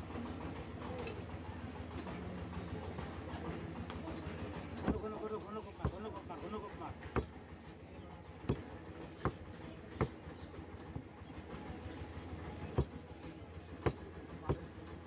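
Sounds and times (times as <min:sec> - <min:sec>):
cleaver chopping on wooden block: 0:07.1 - 0:07.3, 0:08.4 - 0:09.4, 0:13.8 - 0:14.7.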